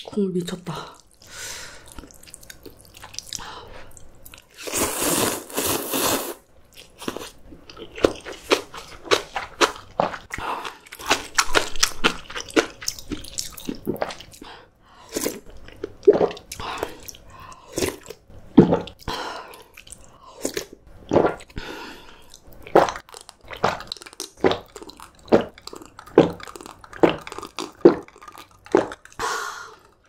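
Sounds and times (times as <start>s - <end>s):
loud slurping of soup: 4.6s - 6.4s
crisp crunching and chewing: 6.8s - 14.4s, 22.3s - 30.0s.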